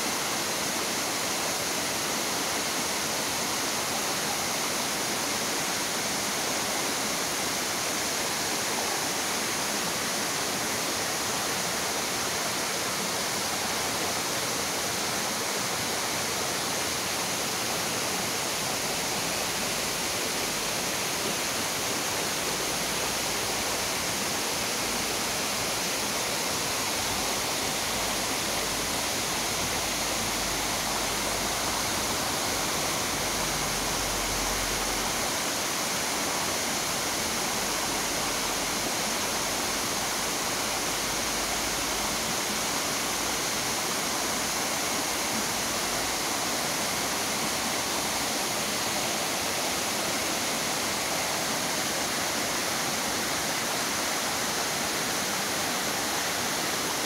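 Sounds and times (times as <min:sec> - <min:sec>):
water rushing down waterfall: 0:00.0 - 0:57.0.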